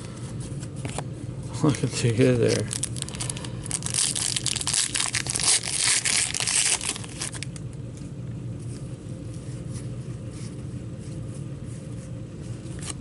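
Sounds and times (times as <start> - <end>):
faint card handling: 0.1 - 5.6
wrapper tearing and crinkling: 2.3 - 7.6.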